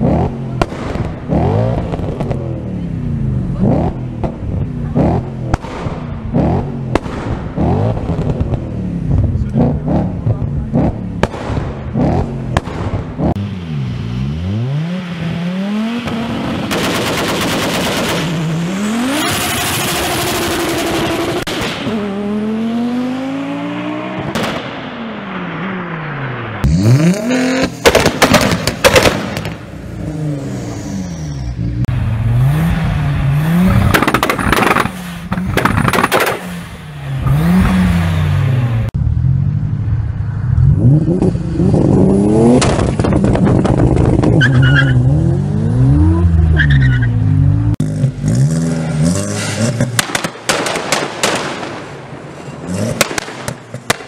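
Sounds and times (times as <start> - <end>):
car engines revving hard: 0.0 - 39.7, 40.5 - 51.4, 52.4 - 54.0
exhaust pops and bangs: 5.4 - 9.3, 10.2 - 13.2, 27.6 - 29.7, 33.7 - 36.5, 42.5 - 44.6, 49.7 - 51.9, 52.9 - 54.0.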